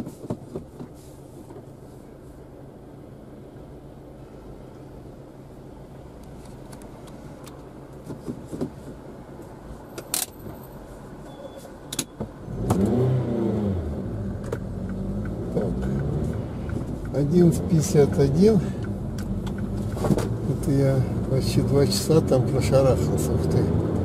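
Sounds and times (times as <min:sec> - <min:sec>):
car engine idling and accelerating: 0:00.0 - 0:24.0.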